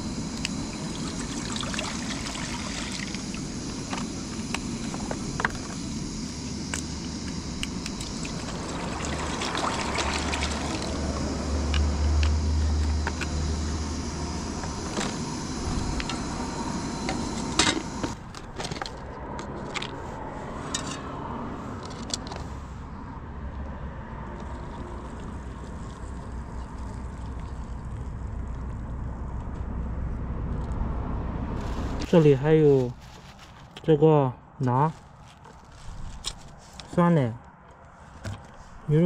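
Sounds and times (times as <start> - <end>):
gas stove hissing: 0.0 - 18.2.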